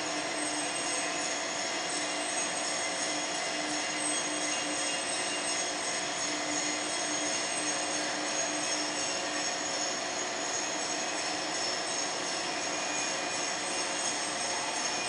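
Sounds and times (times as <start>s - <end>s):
high machine whines: 0.0s - 15.0s
steady machine noise: 0.0s - 15.0s.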